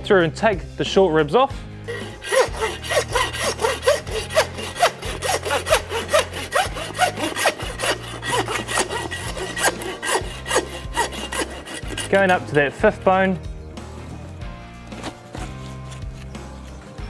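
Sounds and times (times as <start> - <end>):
hand saw cutting bone: 1.9 - 12.9, 14.9 - 16.4.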